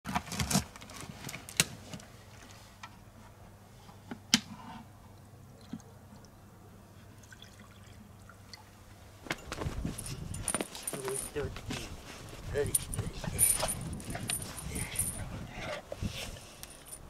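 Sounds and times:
water trickling and dripping: 5.1 - 8.9.

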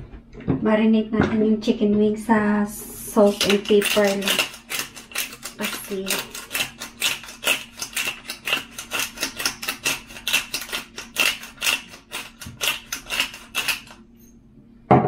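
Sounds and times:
spice grinder crunching clicks: 3.3 - 14.0.

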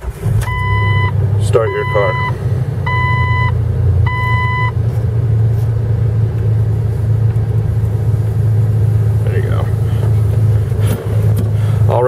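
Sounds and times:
car engine idling: 0.0 - 12.0
dashboard warning chime beeping: 0.4 - 4.8.

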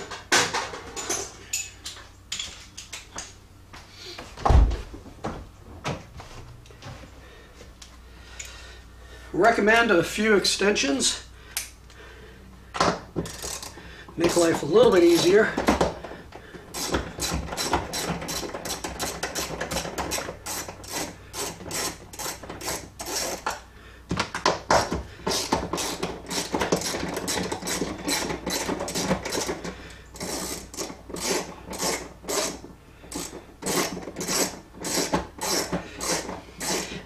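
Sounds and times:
socket ratchet clicking: 30.2 - 36.9.

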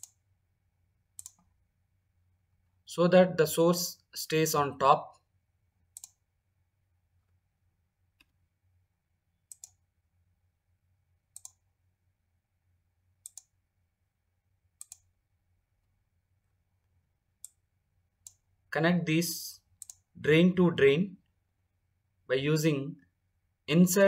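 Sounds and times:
computer mouse clicking: 0.0 - 0.2, 1.1 - 1.6, 5.9 - 6.2, 9.4 - 9.8, 11.3 - 11.7, 13.2 - 13.6, 14.8 - 15.1, 17.4 - 17.6, 18.2 - 18.4, 19.7 - 20.1.

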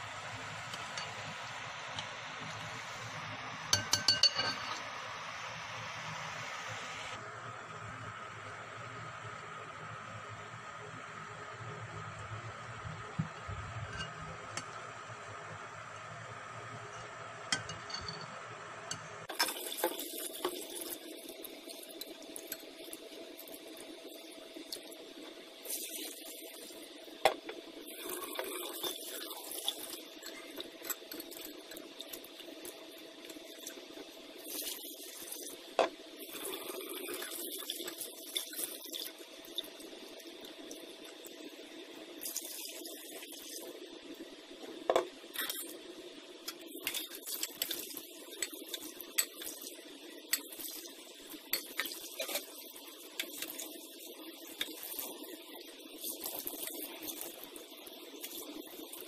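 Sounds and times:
clinks against a glass bowl: 3.7 - 4.8, 13.9 - 14.2, 17.6 - 19.0.

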